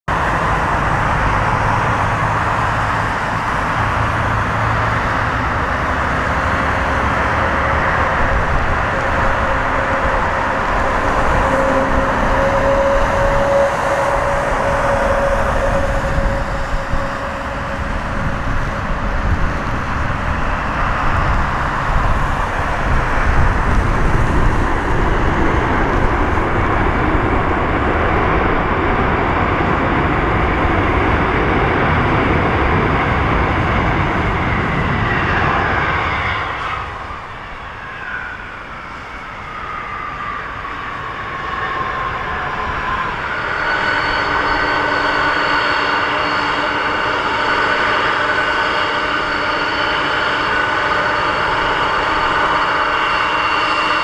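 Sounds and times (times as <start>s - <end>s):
airliner taxiing: 0.1s - 54.0s
jet airliner landing: 0.1s - 54.0s.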